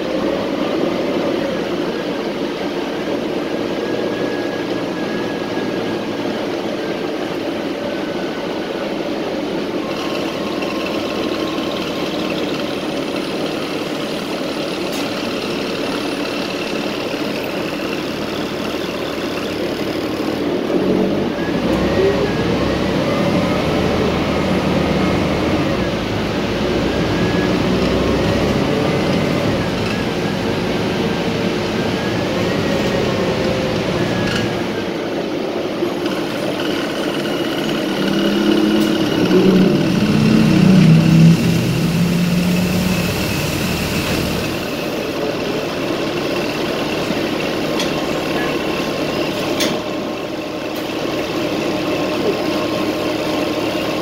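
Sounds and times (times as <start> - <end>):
bus engine and road noise: 0.0 - 54.0.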